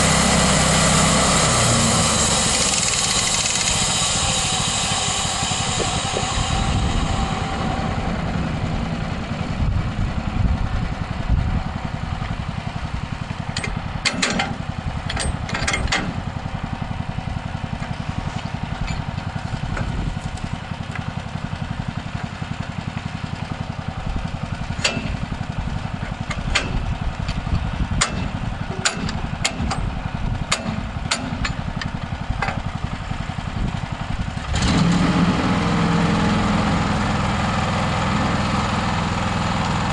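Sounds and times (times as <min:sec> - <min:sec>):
engine running steadily: 0:00.0 - 0:39.9
sharp clicks and knocks: 0:13.5 - 0:16.2, 0:24.8 - 0:25.2, 0:26.0 - 0:29.9, 0:30.5 - 0:32.7.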